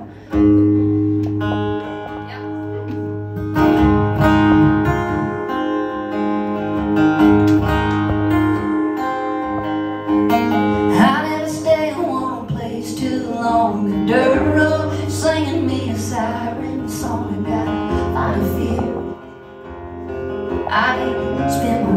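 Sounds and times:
acoustic guitar strumming: 0.0 - 21.9.

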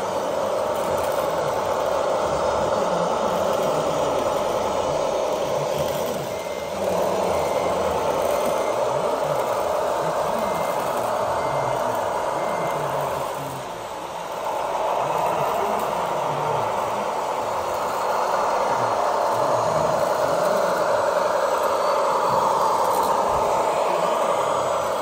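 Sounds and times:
toy machine motors whirring: 0.0 - 25.0
reversing beeper: 0.2 - 25.0.

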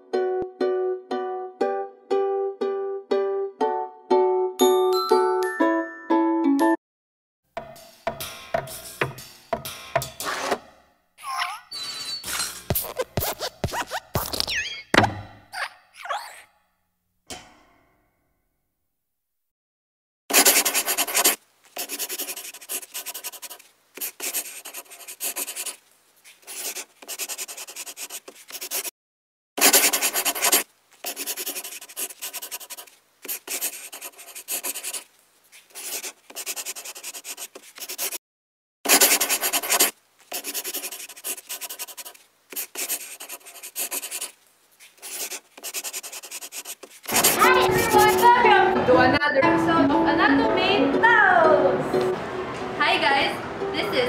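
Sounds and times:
pen scratching on paper: 12.7 - 14.4, 20.3 - 28.9, 29.6 - 38.2, 38.9 - 48.3.

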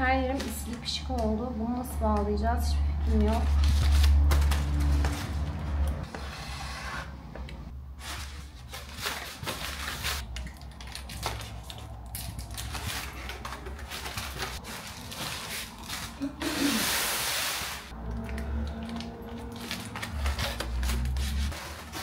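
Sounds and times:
foil balloons crinkling: 8.0 - 22.0.

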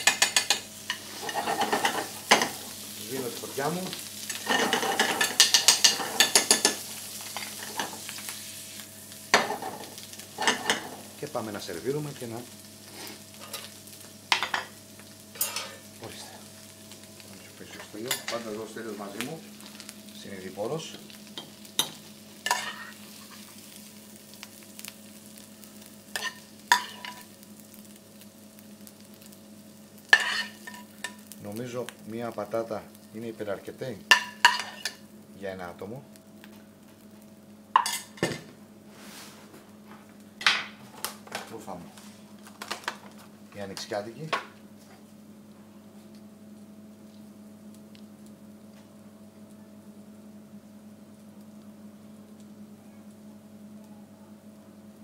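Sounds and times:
frying pan clattering: 0.0 - 2.7, 4.3 - 8.0, 9.3 - 11.1, 14.3 - 14.8, 26.2 - 27.2, 34.1 - 35.0
potatoes sizzling in frying pan: 0.0 - 52.7
steady low hum: 0.0 - 55.0
metal spoon clinking on pan: 26.2 - 27.2.

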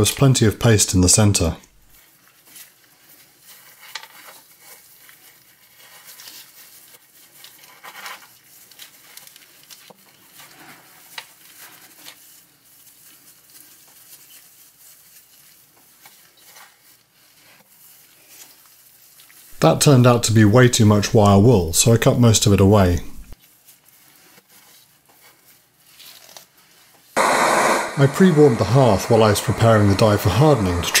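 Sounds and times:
wire wool rustling: 2.0 - 19.6.

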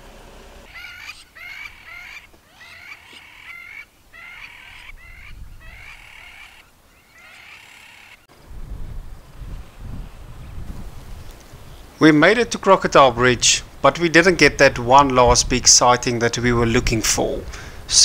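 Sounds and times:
birds calling harshly: 0.5 - 8.3.

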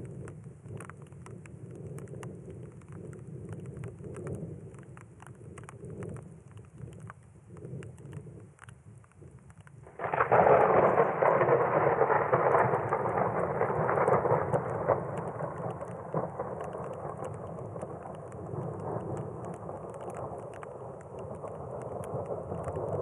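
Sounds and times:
light rain falling: 0.0 - 23.0
thunderclap rumbling: 9.2 - 23.0.

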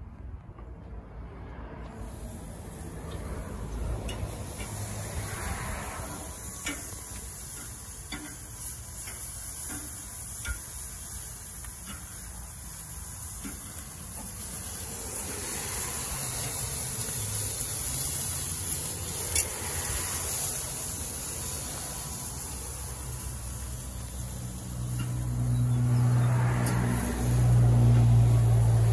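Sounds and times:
meat sizzling on a grill: 2.0 - 28.9
metal tongs scraping a grill grate: 6.6 - 14.8, 17.6 - 21.6.

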